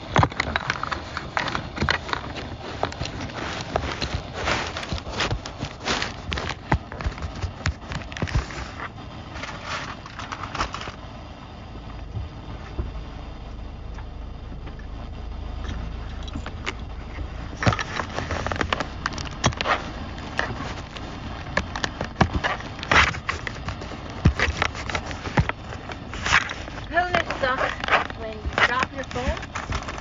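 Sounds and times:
low rumble: 9.1s - 30.0s.

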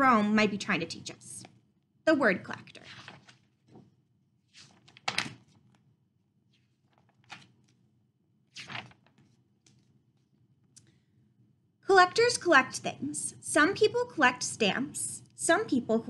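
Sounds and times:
book pages turning: 2.6s - 7.9s, 8.5s - 10.8s.

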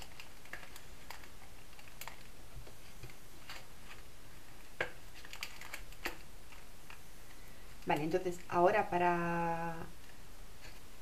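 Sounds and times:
paper box and cellophane crackling: 0.0s - 7.1s.

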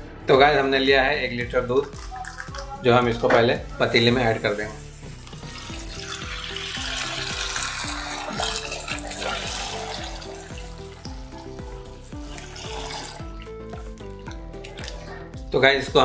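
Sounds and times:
background music: 0.0s - 16.0s
milk pouring into pot: 5.1s - 15.2s.

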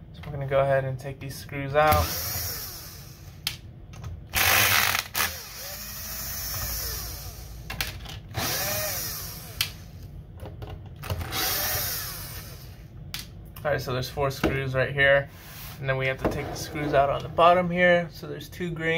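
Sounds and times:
power driver motor whine: 4.4s - 7.6s, 8.3s - 9.8s, 11.1s - 12.8s.

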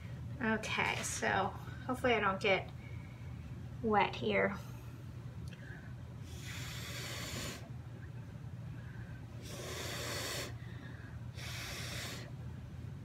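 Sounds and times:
low steady hum: 0.0s - 13.0s
person blowing breathily: 6.2s - 7.7s, 9.4s - 12.3s.

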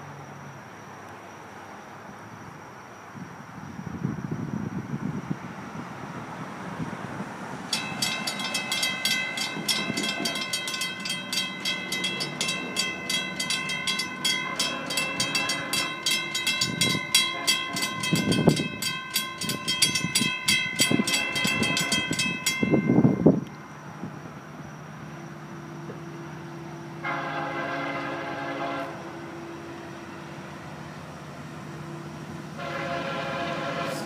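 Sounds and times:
crossing warning bell ringing: 7.6s - 24.2s.

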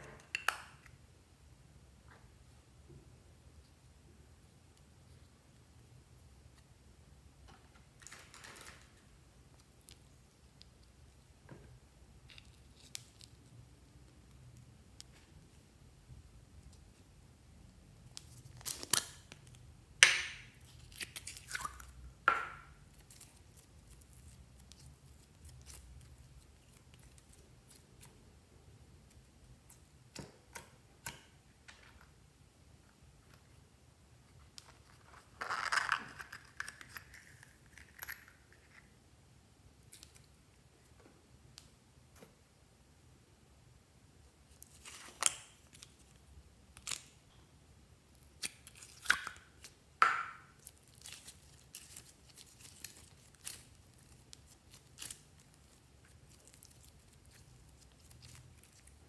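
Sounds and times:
scratchy slime crackle: 50.6s - 59.0s.

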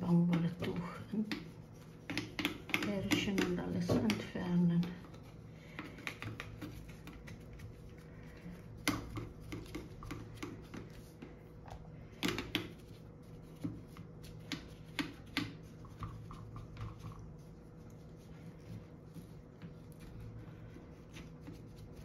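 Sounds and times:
brush knocking metal parts: 0.0s - 7.7s
faint steady hum: 0.0s - 22.0s.

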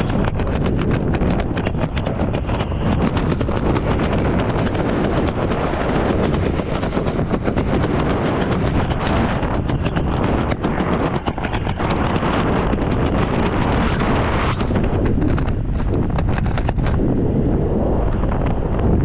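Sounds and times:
crackling wind buffets: 0.0s - 19.0s
wind rushing on microphone: 0.0s - 19.0s.

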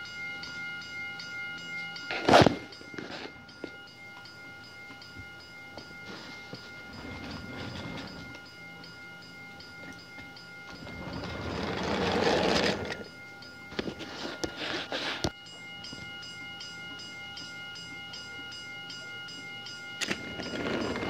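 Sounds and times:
crossing signal ringing tones: 0.0s - 21.0s.

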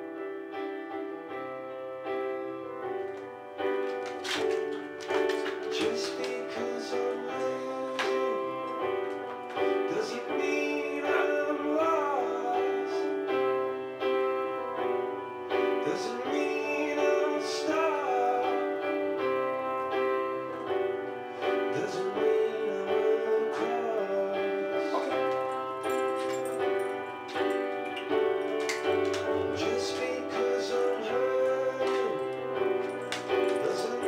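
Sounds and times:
sustained keyboard chords: 0.0s - 34.0s
person singing: 5.1s - 13.8s, 15.5s - 19.6s, 21.4s - 27.5s, 28.5s - 34.0s.

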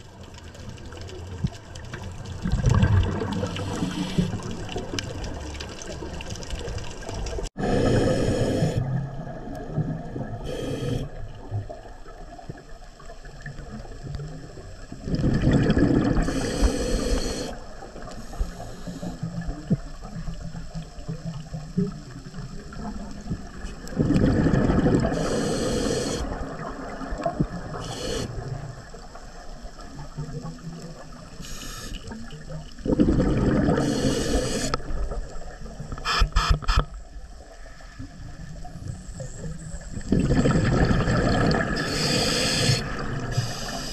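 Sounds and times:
exhaled bubbles rushing: 2.0s - 8.1s, 13.6s - 16.6s, 19.3s - 25.5s, 32.5s - 35.5s, 39.6s - 43.6s.

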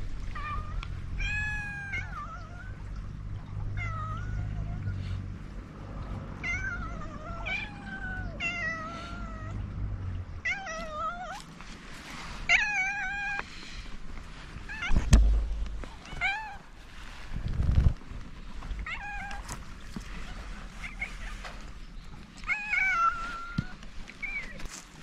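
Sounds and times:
low bumps: 14.0s - 21.9s
sharp knock: 14.9s - 16.0s
cat meowing: 18.8s - 19.5s.

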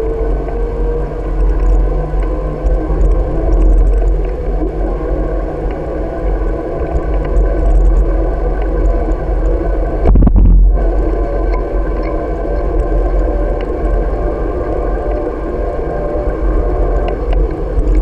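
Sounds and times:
wind rushing over microphone: 6.6s - 18.0s.

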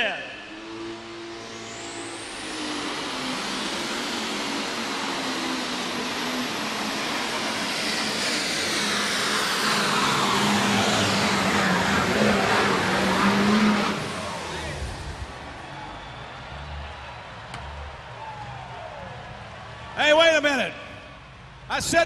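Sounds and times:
turbocharger whine: 0.0s - 20.0s
tractor engine at full power: 0.4s - 16.8s.

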